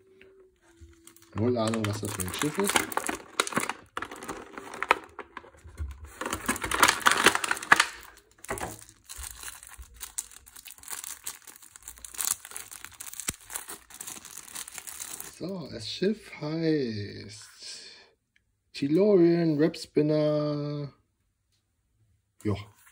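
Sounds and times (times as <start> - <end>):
plastic packaging crinkling: 0.6 - 15.5.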